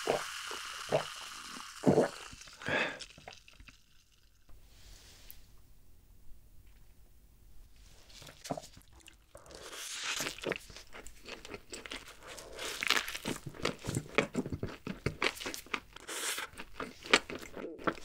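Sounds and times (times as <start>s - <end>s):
biting into a burger: 8.2s - 18.0s
wet chewing clicks: 8.4s - 18.0s.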